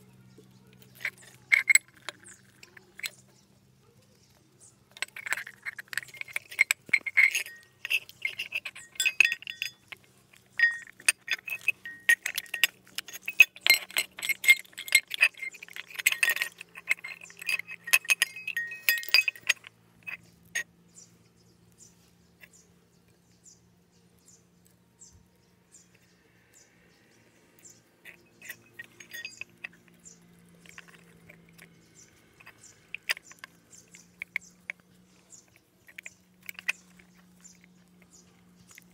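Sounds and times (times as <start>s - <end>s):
handling noise: 0.0s - 20.7s, 27.6s - 38.9s
metal bells clinking: 5.0s - 20.6s, 27.6s - 38.9s.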